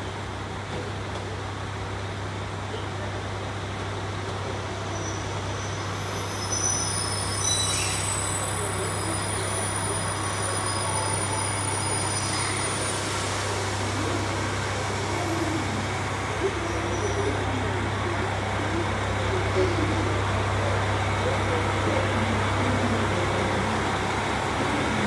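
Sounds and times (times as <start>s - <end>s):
diesel railcars idling: 0.1s - 25.0s
high-pitched squeal: 6.1s - 13.2s.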